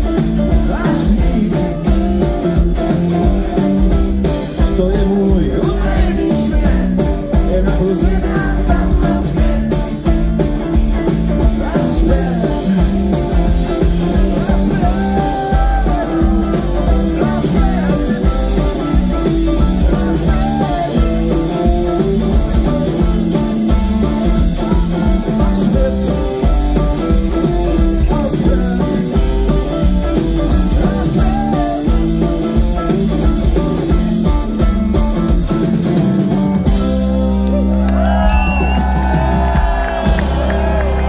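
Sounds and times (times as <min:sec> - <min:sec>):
live rock band playing: 0:00.0 - 0:41.0
crowd cheering: 0:37.4 - 0:41.0.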